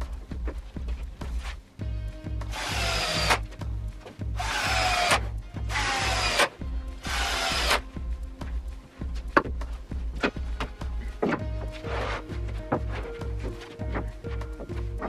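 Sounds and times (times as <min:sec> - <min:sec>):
background music with low beat: 0:00.0 - 0:15.0
cordless drill whining into wood: 0:02.5 - 0:03.4, 0:04.4 - 0:07.8.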